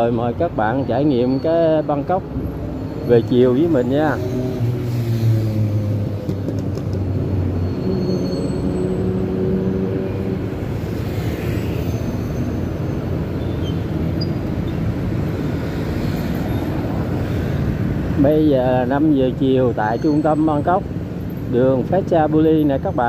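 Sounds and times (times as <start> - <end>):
traffic on wet road: 0.0 - 23.0.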